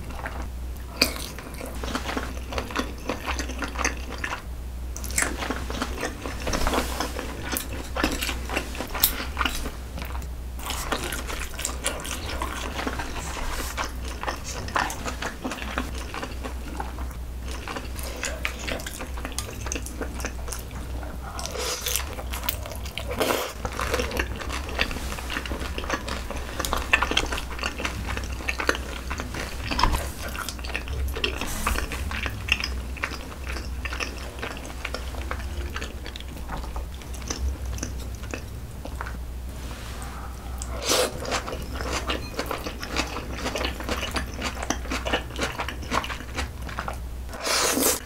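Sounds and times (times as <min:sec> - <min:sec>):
chewing noodles: 0:00.0 - 0:39.2, 0:39.9 - 0:48.0
noisy slurps: 0:10.6 - 0:48.0.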